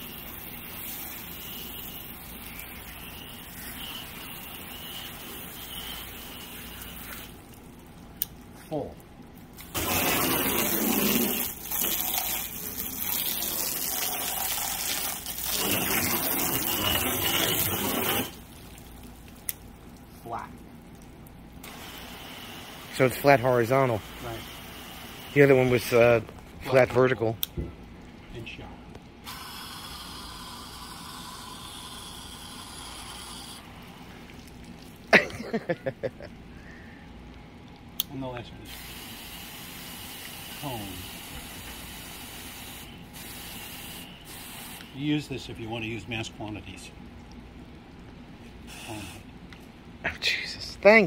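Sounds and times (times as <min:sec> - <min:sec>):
hose water spraying on trailer: 0:00.0 - 0:07.4, 0:09.6 - 0:18.5, 0:21.6 - 0:26.2, 0:29.2 - 0:33.4, 0:38.7 - 0:45.1.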